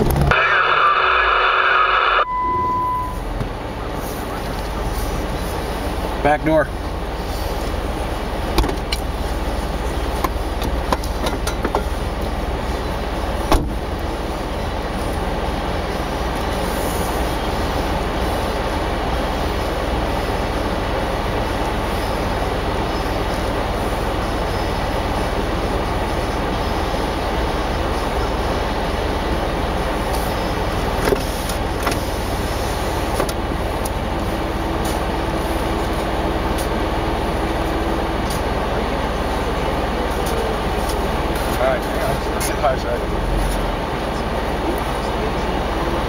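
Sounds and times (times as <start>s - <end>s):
car engine idling: 0.0s - 46.0s.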